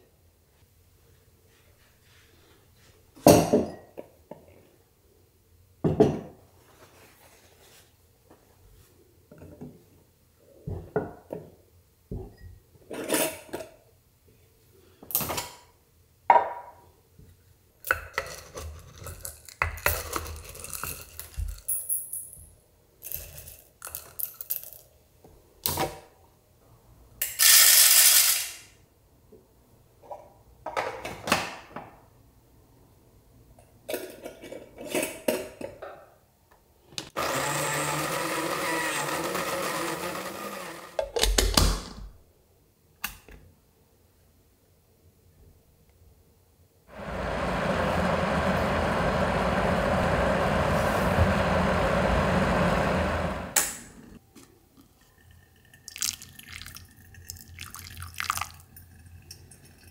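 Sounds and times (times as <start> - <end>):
coffee grinder motor grinding: 37.2 - 41.0, 46.9 - 53.6.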